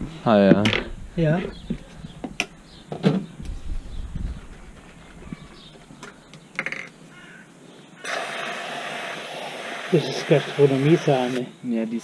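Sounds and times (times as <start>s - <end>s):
aerosol cream can spraying: 8.1s - 11.4s.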